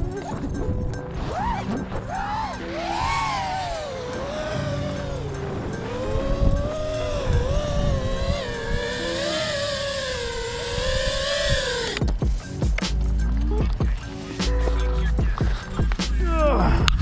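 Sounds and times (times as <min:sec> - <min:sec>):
low buffeting: 0:00.0 - 0:12.2
quadcopter motors whining: 0:00.0 - 0:12.2.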